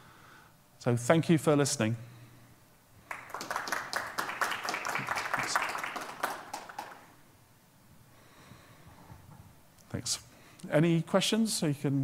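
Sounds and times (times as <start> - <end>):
audience applauding: 3.1 - 7.2.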